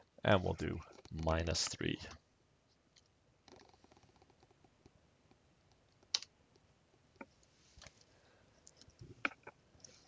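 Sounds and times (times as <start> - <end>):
keyboard and mouse clicks: 2.9 - 8.0.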